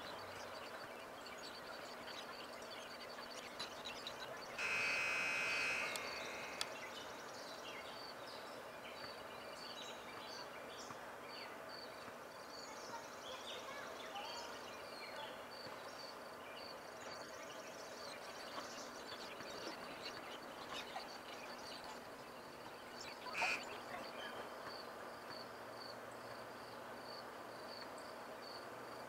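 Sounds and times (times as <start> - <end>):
high-pitched tone: 4.6 - 6.7
small chirps: 4.6 - 6.8.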